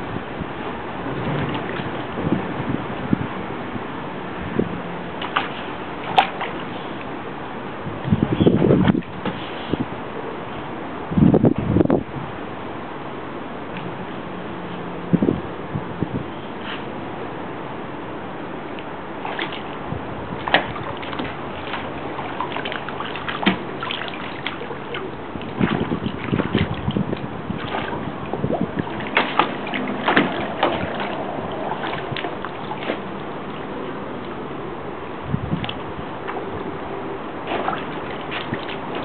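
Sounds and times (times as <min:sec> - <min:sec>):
dogs splashing in water: 0:01.0 - 0:02.3, 0:05.0 - 0:07.2, 0:19.2 - 0:34.9, 0:35.6 - 0:39.0.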